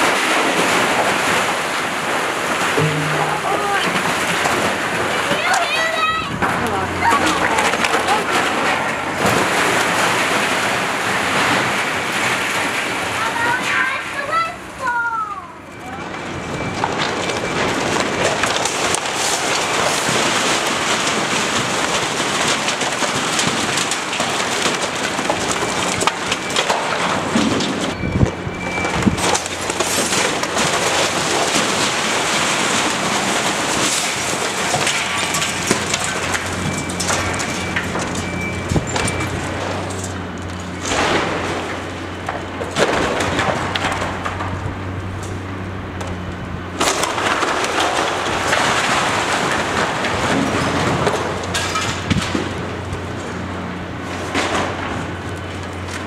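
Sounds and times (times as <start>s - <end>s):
masonry debris crashing down: 0.0s - 56.0s
heavy machine engine humming: 2.6s - 11.4s, 31.2s - 56.0s.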